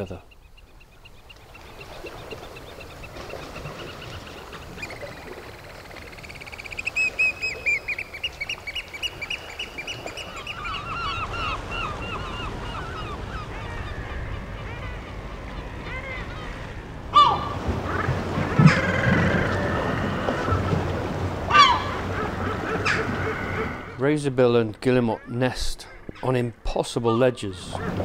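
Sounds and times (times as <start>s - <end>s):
oystercatchers piping calls: 5.8s - 20.5s, 21.5s - 24.1s.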